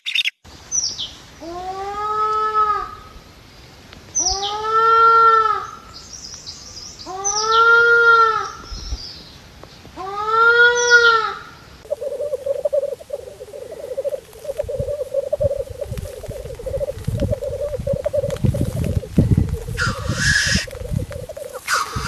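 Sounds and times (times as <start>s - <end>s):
bird calls rising and falling: 0.0s - 1.1s, 11.8s - 22.0s
low bubbling grouse song: 11.8s - 22.0s.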